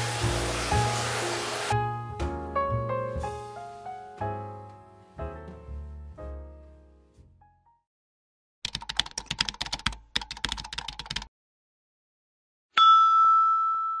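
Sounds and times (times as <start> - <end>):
rapid keyboard typing: 8.6 - 11.3
loud ringing chime: 12.8 - 14.0.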